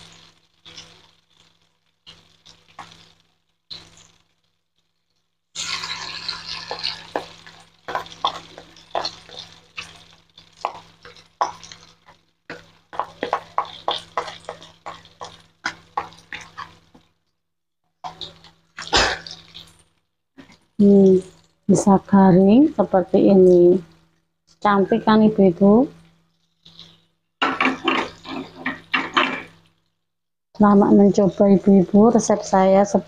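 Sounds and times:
fritters deep-frying in hot oil: 0:00.0 - 0:17.2, 0:18.0 - 0:29.8
oil crackling and popping: 0:00.0 - 0:21.7, 0:26.0 - 0:30.1.

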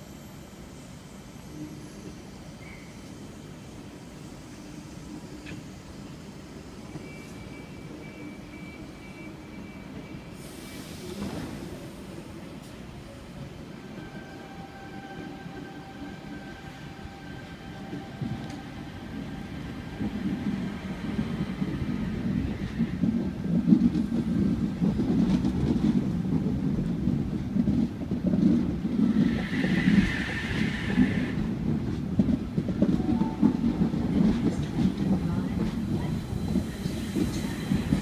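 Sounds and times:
train wheel squeal: 0:00.0 - 0:11.7, 0:29.0 - 0:31.6, 0:33.1 - 0:38.0
train rolling rumble: 0:00.0 - 0:38.0
electric train whine: 0:13.6 - 0:24.0, 0:28.9 - 0:38.0.

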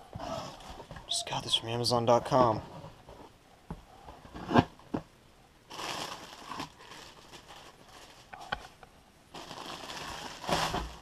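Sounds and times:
plastic wrapping crinkling: 0:05.7 - 0:11.0
cardboard box rustling: 0:09.4 - 0:11.0.

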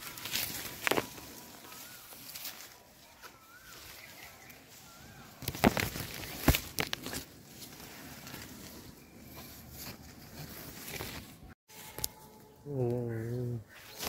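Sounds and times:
branches rustling: 0:00.0 - 0:12.6, 0:13.7 - 0:14.0.

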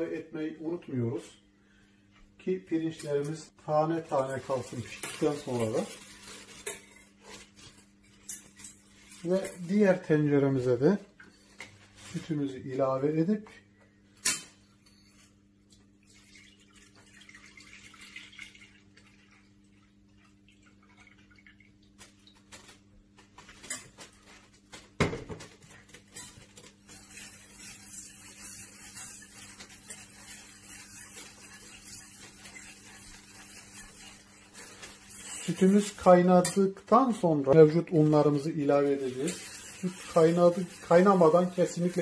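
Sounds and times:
wire whisk stirring in a pot: 0:02.9 - 0:13.3, 0:25.6 - 0:42.0
milk pouring into a metal pot: 0:15.8 - 0:22.1.

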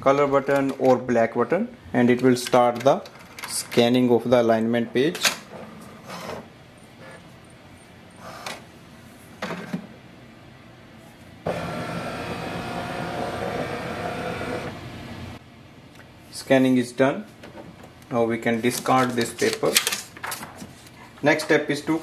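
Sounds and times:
scanner carriage motor running: 0:11.5 - 0:15.3.

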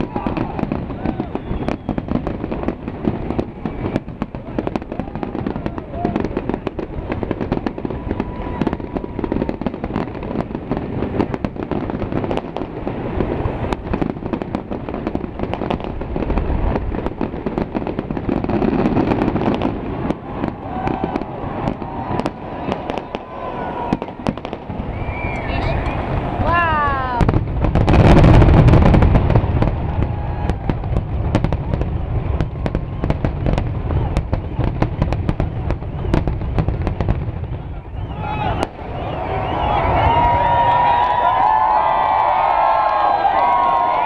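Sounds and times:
firework whistles: 0:00.0 - 0:10.6, 0:18.2 - 0:42.4
fireworks crackling and banging: 0:00.0 - 0:44.0.

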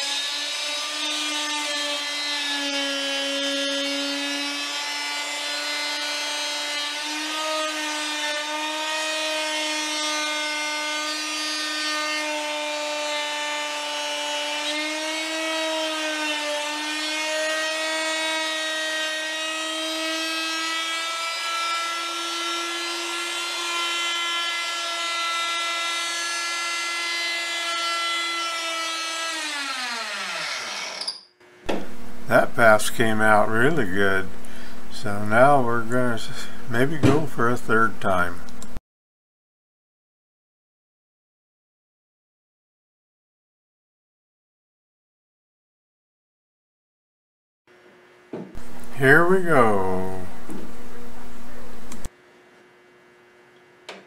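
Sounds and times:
router cutting wood: 0:00.0 - 0:34.0.

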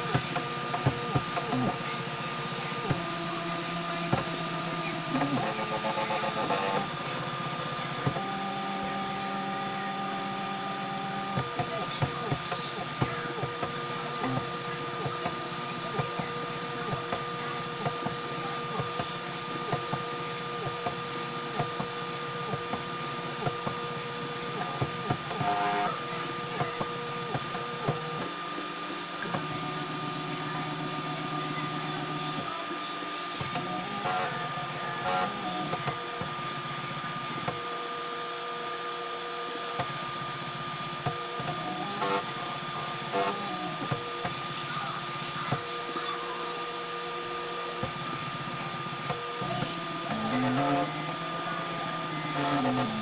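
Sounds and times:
stepper motors whining: 0:00.0 - 0:53.0
steady high tone: 0:41.3 - 0:53.0.

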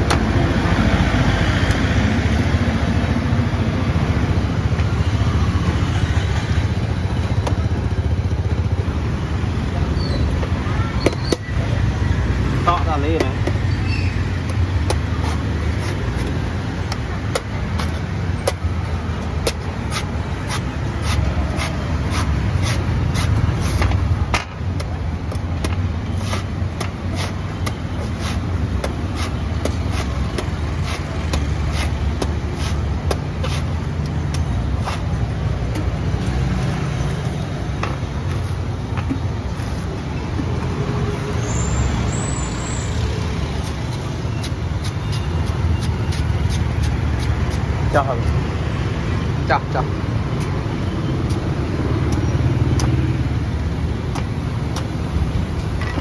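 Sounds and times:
cleaver chopping coconut husk: 0:14.4 - 0:36.8, 0:51.2 - 0:53.2, 0:53.8 - 0:55.1.

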